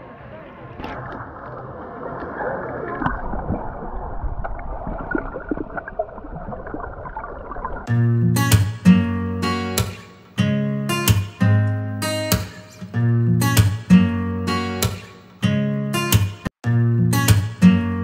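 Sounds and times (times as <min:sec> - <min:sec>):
underwater water gurgling: 0:00.8 - 0:07.9
acoustic guitar music: 0:07.9 - 0:18.0.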